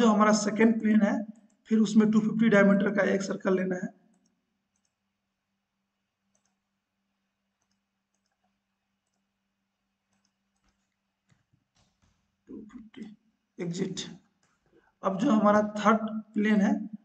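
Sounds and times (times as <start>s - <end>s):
faint computer mouse clicks: 4.1s - 5.0s, 6.3s - 6.6s, 7.6s - 9.3s, 10.1s - 12.2s.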